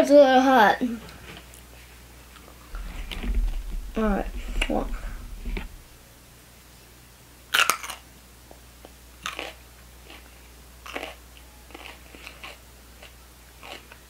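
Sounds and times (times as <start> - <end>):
pepper crunching while chewed: 9.2 - 14.0.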